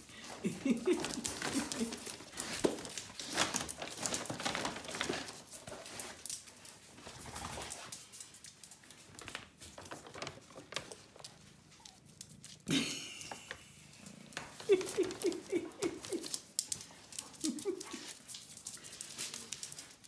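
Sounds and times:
paper bag rustling and crackling: 0:00.5 - 0:06.3, 0:09.1 - 0:11.3.

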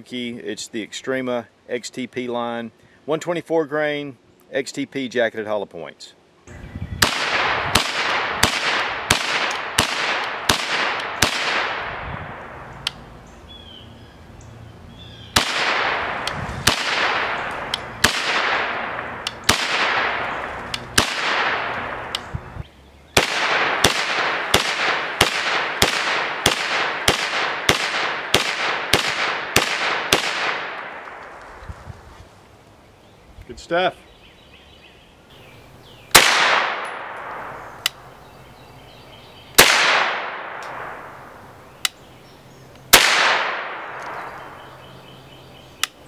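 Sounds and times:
rifle shots echoing: 0:07.0 - 0:12.7, 0:15.3 - 0:22.3, 0:23.2 - 0:31.3, 0:36.1 - 0:38.1, 0:39.6 - 0:41.5, 0:42.9 - 0:45.0.

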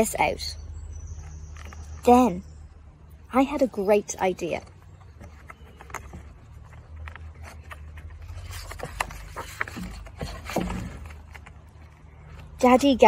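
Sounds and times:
book pages rustling: 0:01.2 - 0:02.2, 0:03.8 - 0:13.0.

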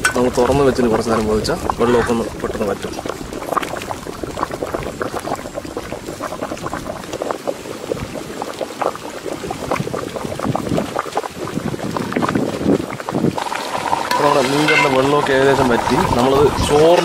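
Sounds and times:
curry boiling and bubbling: 0:00.0 - 0:17.0.

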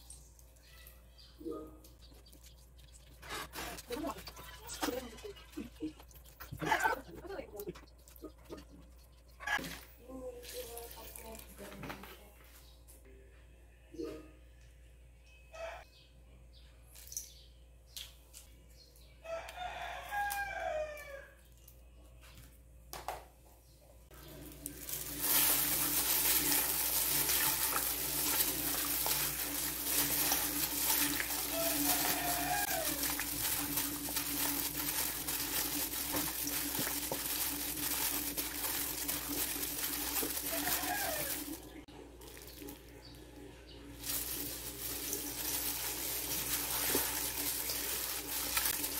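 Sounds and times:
hand mixing chicken in a bowl: 0:02.0 - 0:09.3, 0:24.1 - 0:48.9
rooster crowing: 0:15.5 - 0:15.9, 0:19.2 - 0:21.4, 0:31.0 - 0:33.3, 0:40.2 - 0:41.7.

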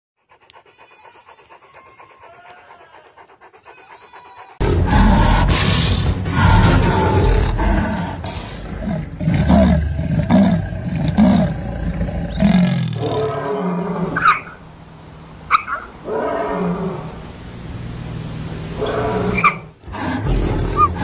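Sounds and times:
animals snarling and growling: 0:00.2 - 0:14.5, 0:18.8 - 0:21.0
rising and falling cries: 0:00.3 - 0:14.5.

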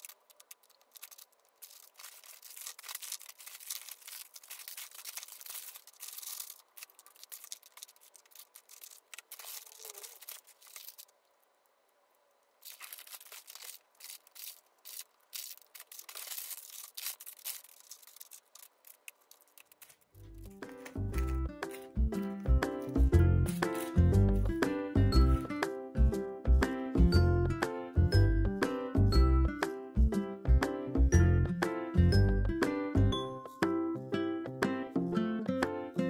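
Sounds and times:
crinkling and rustling wrappers: 0:00.0 - 0:24.0.

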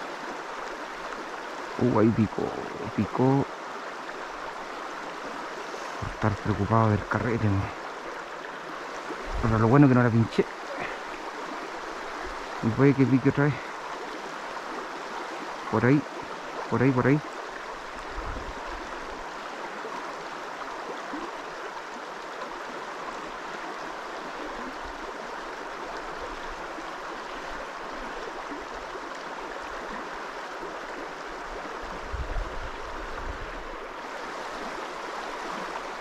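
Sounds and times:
flowing river water: 0:00.0 - 0:36.0.

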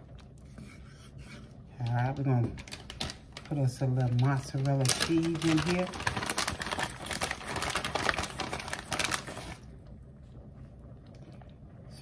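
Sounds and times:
plastic bag crinkling: 0:02.5 - 0:09.6.

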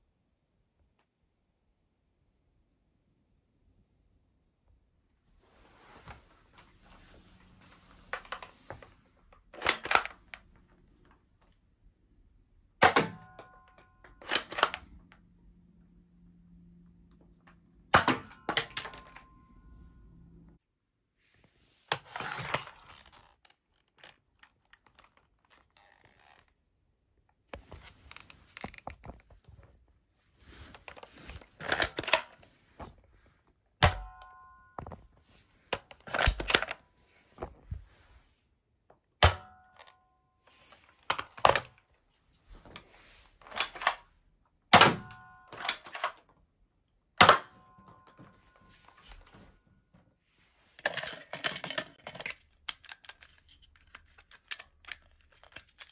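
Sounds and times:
toy blaster slides rattling and clicking: 0:30.8 - 0:32.4, 0:35.8 - 0:36.8, 0:50.8 - 0:55.9.

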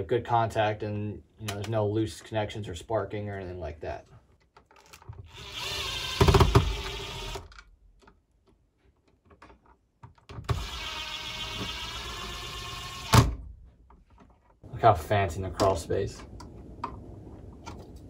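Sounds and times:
cordless drill driving screws: 0:05.2 - 0:07.6, 0:10.5 - 0:13.3.

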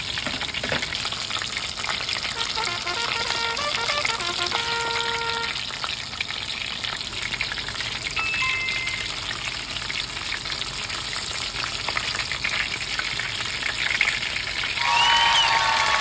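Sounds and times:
food deep-frying in oil: 0:00.0 - 0:15.8
short tonal notes: 0:02.4 - 0:05.6
two-note tone: 0:02.4 - 0:05.6, 0:08.2 - 0:09.2.

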